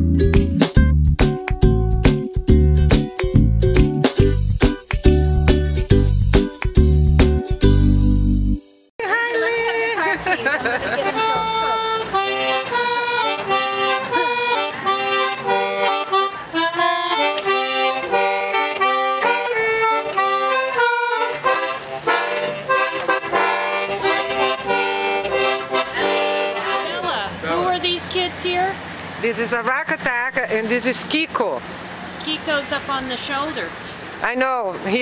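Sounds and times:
accordion playing a tune: 1.4s - 28.7s.

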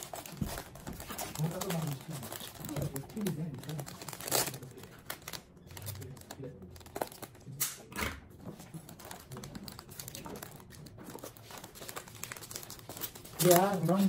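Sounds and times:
wrapping paper rustling and crinkling: 0.0s - 7.6s, 8.4s - 14.0s.

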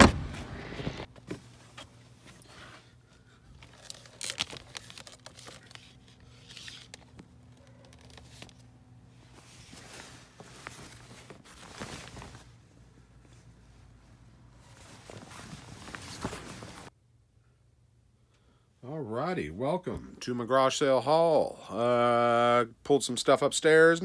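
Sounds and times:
clothing rustling and crinkling: 0.8s - 16.9s.

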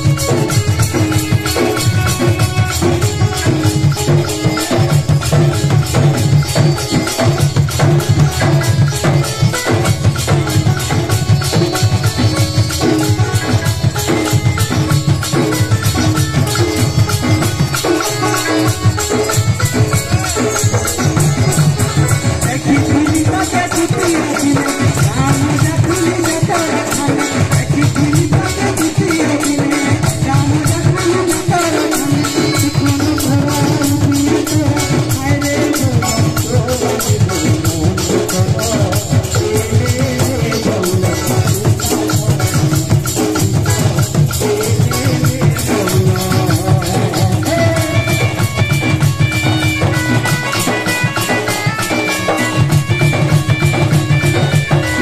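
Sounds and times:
fast percussion rhythm: 0.0s - 55.0s
shakers: 0.0s - 55.0s
man singing: 17.8s - 51.4s.

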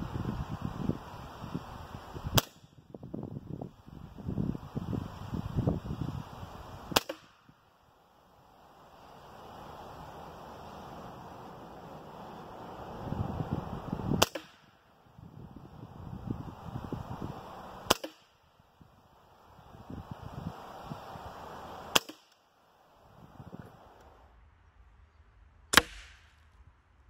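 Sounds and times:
wind buffeting microphone: 0.0s - 7.6s, 12.6s - 14.2s, 15.1s - 17.9s, 18.7s - 22.0s, 23.1s - 24.2s
breeze through trees: 0.0s - 27.0s
air rifle shots: 2.3s - 2.8s, 6.9s - 7.6s, 14.2s - 14.8s, 17.8s - 18.4s, 21.9s - 22.4s, 25.7s - 26.5s.

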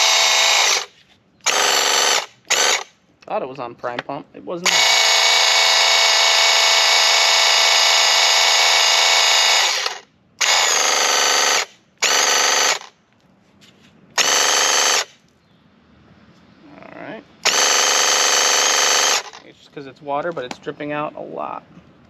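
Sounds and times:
paint sprayer pump buzzing: 0.0s - 2.9s, 4.6s - 12.9s, 14.2s - 15.1s, 17.4s - 19.4s.

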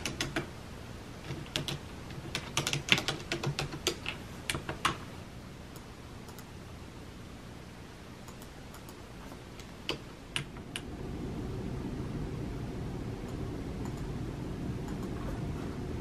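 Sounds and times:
keyboard typing: 0.0s - 0.5s, 1.2s - 5.1s, 8.2s - 10.8s, 13.3s - 14.1s, 14.8s - 15.4s.

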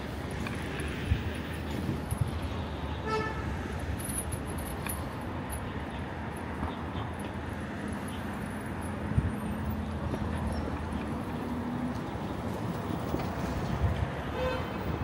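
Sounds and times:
traffic and road rumble: 0.0s - 15.0s.

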